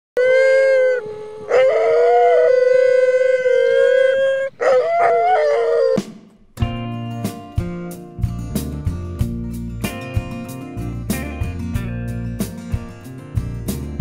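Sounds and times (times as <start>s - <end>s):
dogs howling: 0.2s - 6.0s.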